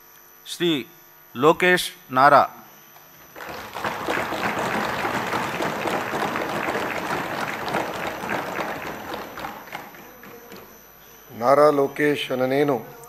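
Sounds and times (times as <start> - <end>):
crowd applauding: 3.2 - 10.7.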